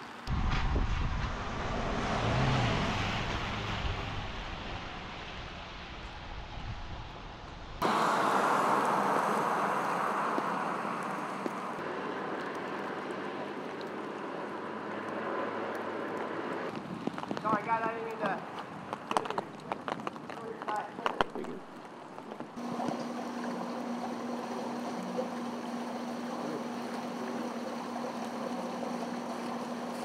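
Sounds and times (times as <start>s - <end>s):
car passing on wet road: 0.3s - 21.3s
steady outdoor hiss: 3.8s - 30.0s.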